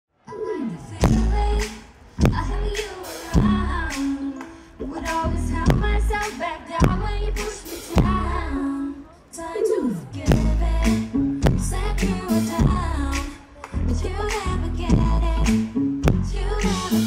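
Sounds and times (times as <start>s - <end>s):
pop song with female vocals: 0.2s - 17.0s.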